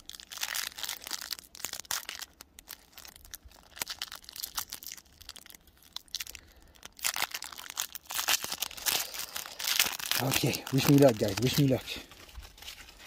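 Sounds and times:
foil wrapper crinkling and tearing: 0.0 - 13.0.

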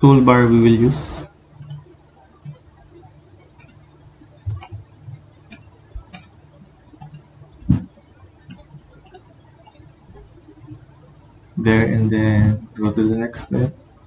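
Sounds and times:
computer mouse clicking: 1.5 - 11.1.

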